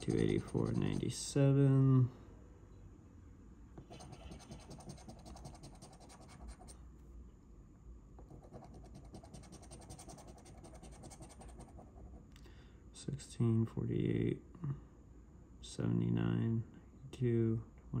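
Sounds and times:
scratching lottery ticket coating: 0:00.0 - 0:01.1, 0:03.8 - 0:06.7, 0:08.3 - 0:11.9.

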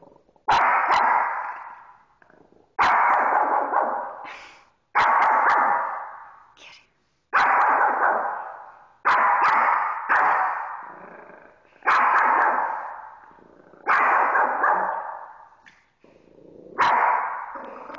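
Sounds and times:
dog barking: 0:00.5 - 0:02.0, 0:02.8 - 0:04.3, 0:05.0 - 0:06.4, 0:07.3 - 0:11.1, 0:11.8 - 0:15.6, 0:16.7 - 0:17.9.

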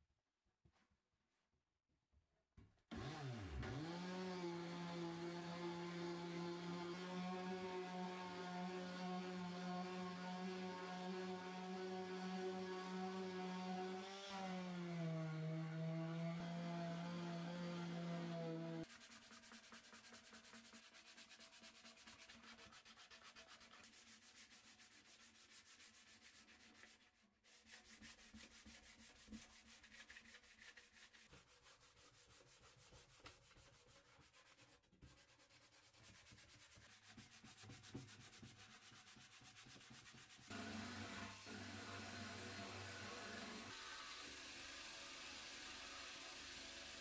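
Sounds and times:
sandpaper scratching metal: 0:18.8 - 0:40.6.

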